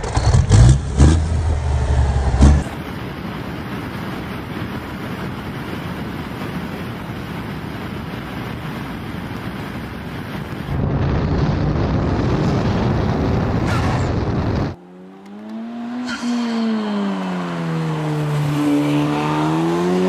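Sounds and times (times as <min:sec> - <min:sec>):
diesel truck engine revving: 0:00.0 - 0:02.7, 0:13.3 - 0:20.0
wind and road noise: 0:00.0 - 0:20.0.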